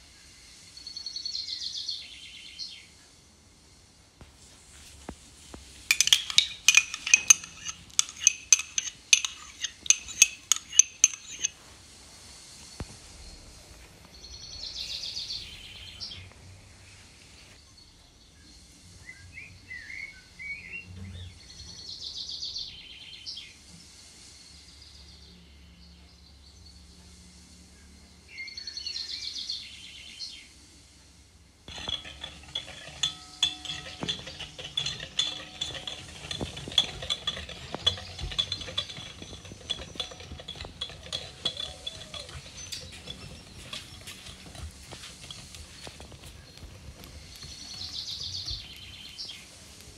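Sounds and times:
whisk clinking in a glass bowl: 5.8 - 11.6, 31.7 - 46.0.

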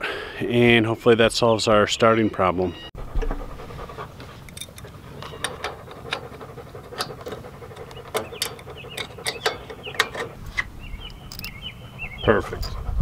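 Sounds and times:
wrench clinking on metal: 4.5 - 6.4, 7.0 - 11.6.

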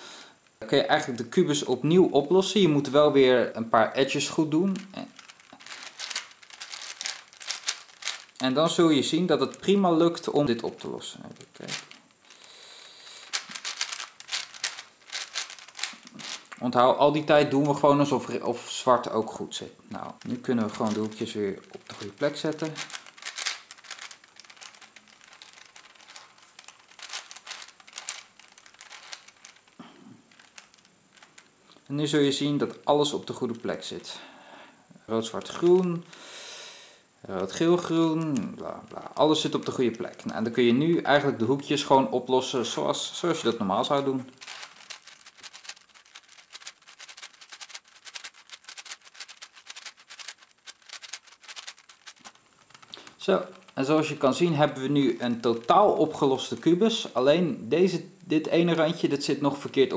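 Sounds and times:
puzzle cube clicking and rattling: 4.6 - 16.6, 19.9 - 34.0, 37.4 - 40.9, 43.4 - 56.8.

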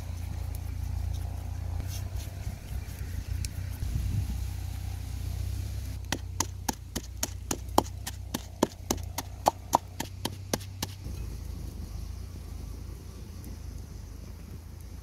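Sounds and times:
pestle pounding in wooden mortar: 6.1 - 11.0.

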